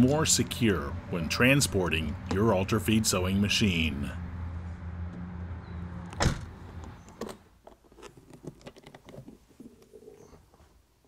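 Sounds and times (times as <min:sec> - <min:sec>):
van door shutting: 0:06.1 - 0:07.4.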